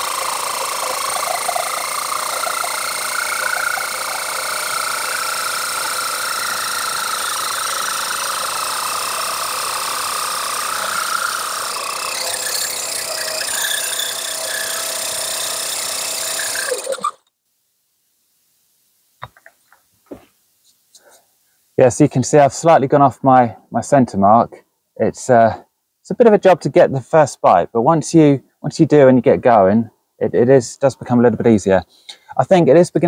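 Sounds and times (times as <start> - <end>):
drill bit grinding into clay: 0.0 - 17.2
electric drill whining: 0.0 - 17.2.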